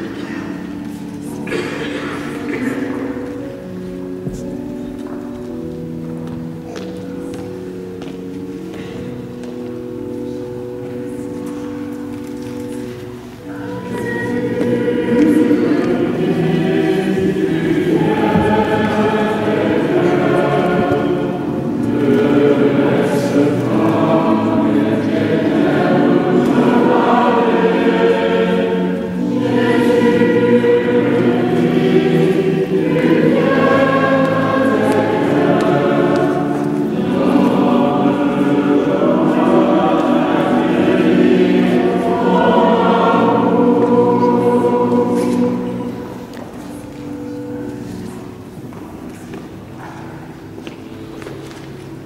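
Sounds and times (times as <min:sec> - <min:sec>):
choir singing a hymn: 0:00.0 - 0:04.8, 0:10.2 - 0:48.7.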